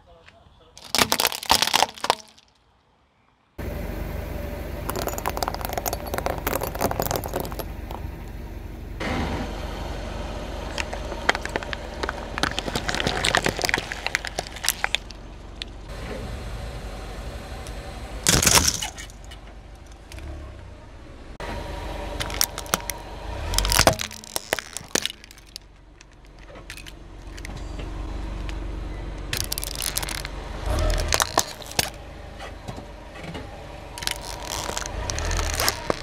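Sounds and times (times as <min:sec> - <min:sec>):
crackling and snapping: 0:00.8 - 0:02.6, 0:04.9 - 0:08.4, 0:10.7 - 0:15.9, 0:18.2 - 0:20.3, 0:22.2 - 0:27.6, 0:29.2 - 0:32.0, 0:34.0 - 0:36.0
tyre crushing brittle objects: 0:00.8 - 0:02.6, 0:04.9 - 0:08.4, 0:10.7 - 0:15.8, 0:18.2 - 0:19.3, 0:22.2 - 0:27.6, 0:29.2 - 0:32.0, 0:34.0 - 0:36.0
car rumble: 0:03.6 - 0:36.0.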